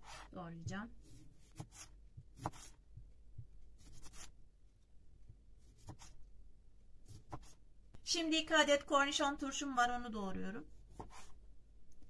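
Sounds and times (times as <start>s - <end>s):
knife cutting on cutting board: 1.0s - 2.8s, 3.8s - 4.4s, 5.6s - 6.2s, 7.1s - 7.6s.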